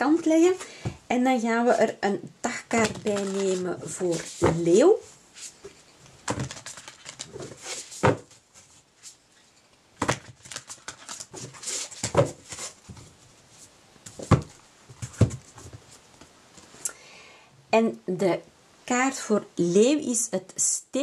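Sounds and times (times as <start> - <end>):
cards rustling: 2.7 - 4.7, 6.2 - 9.2, 10.0 - 13.1.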